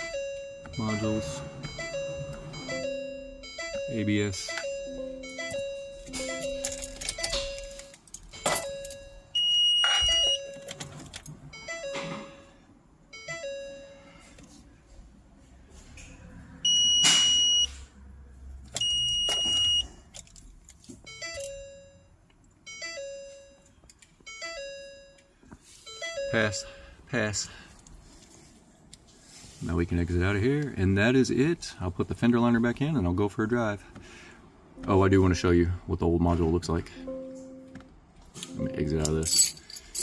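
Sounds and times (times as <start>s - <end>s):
low two-note warning chime: 0.0s - 7.8s, 37.0s - 37.8s, 38.5s - 39.1s
high-pitched beeps: 0.0s - 10.8s.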